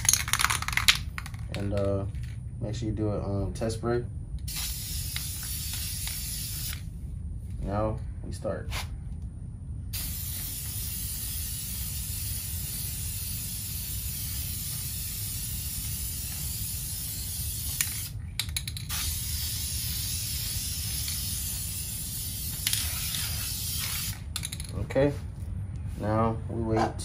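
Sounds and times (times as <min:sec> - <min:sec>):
spray can hissing: 0:04.5 - 0:06.9, 0:09.9 - 0:24.3
spray can clicks: 0:22.5 - 0:24.6.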